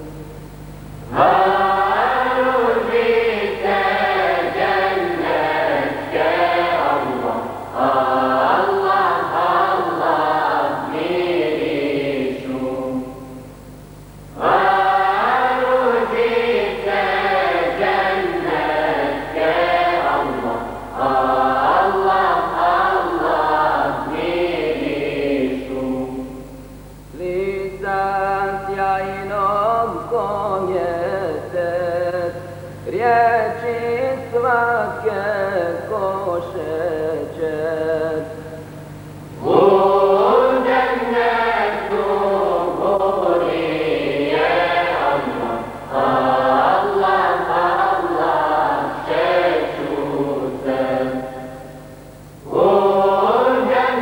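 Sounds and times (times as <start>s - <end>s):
low steady hum: 0.0s - 54.0s
choir singing a hymn: 1.1s - 13.4s, 14.3s - 26.5s, 39.4s - 51.8s, 52.4s - 54.0s.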